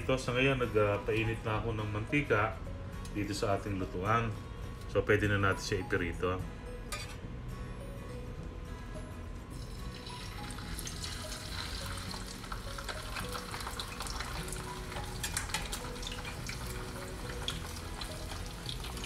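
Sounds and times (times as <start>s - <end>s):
fish sizzling in hot oil: 9.6s - 19.0s.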